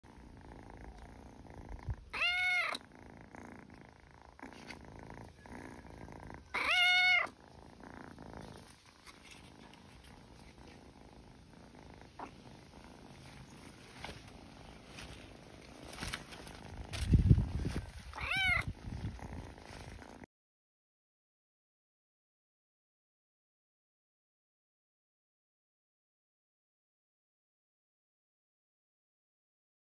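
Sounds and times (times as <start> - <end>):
kitten purring: 0.0 - 20.3
kitten meowing: 2.1 - 2.8, 6.5 - 7.4, 18.1 - 18.8.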